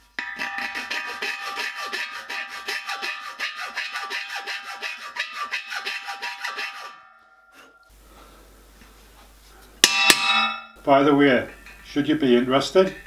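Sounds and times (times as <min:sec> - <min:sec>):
hand file rasping on metal: 0:00.3 - 0:07.1.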